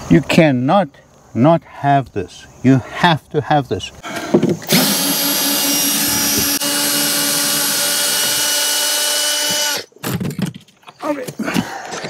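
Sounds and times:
cordless power tool running: 4.6 - 9.9.

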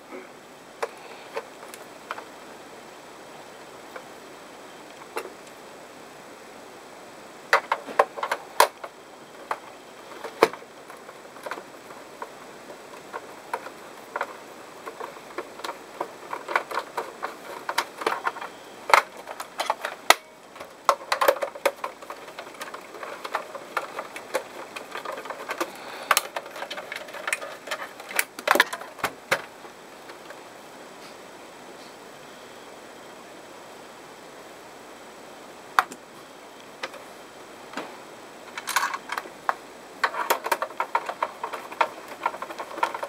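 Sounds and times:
plastic shell and tool knocking: 40.0 - 43.0.

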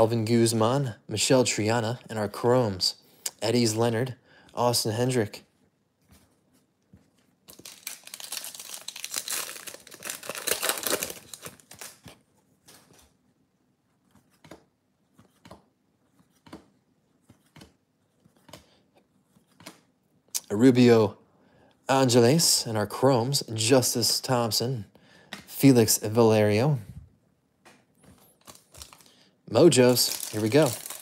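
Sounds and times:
plastic wrapper tearing and crinkling: 7.5 - 12.1, 28.4 - 31.0.

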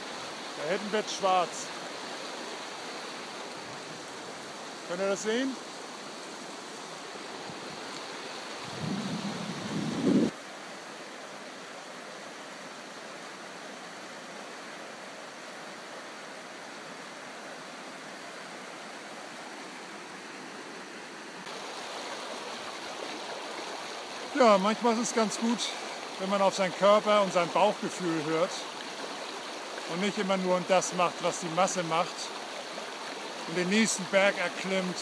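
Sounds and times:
river rushing over gravel: 0.0 - 11.4, 21.5 - 35.0.

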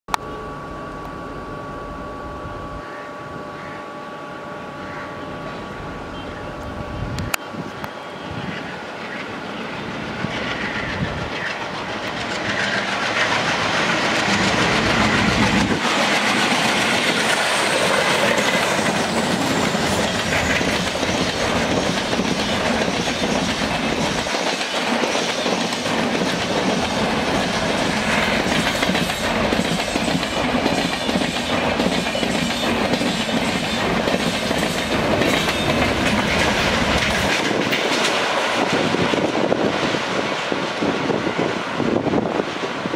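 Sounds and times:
diesel locomotives chugging: 1.3 - 42.9
train wheels clattering over rail joints: 10.0 - 40.5.

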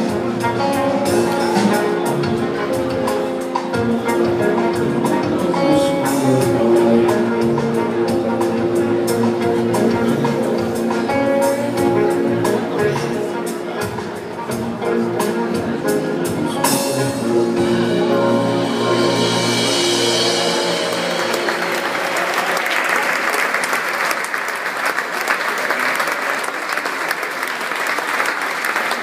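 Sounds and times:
drum strikes: 0.0 - 22.4
live band holding a chord: 0.0 - 26.8
audience applauding: 20.7 - 29.0.

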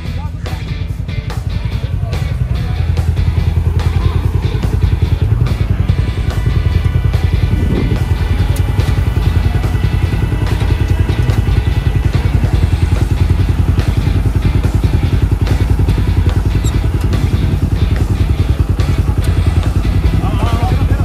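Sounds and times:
engine idling loudly: 0.0 - 21.0.

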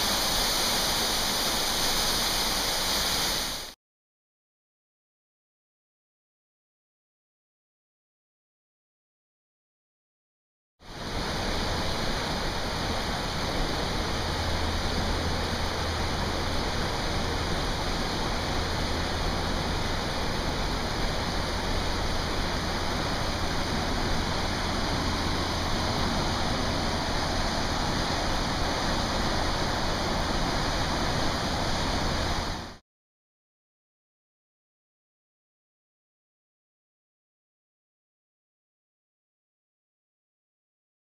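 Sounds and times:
creek water rushing: 0.0 - 3.7, 10.9 - 32.8.

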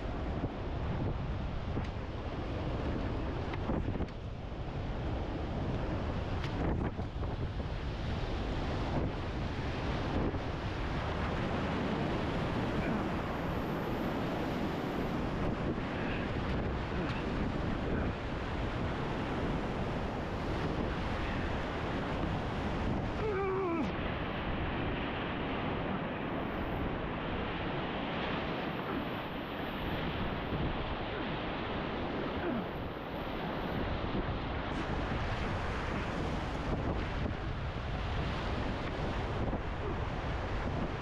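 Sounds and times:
whitewater rapid rushing: 11.0 - 18.2, 23.1 - 24.6.

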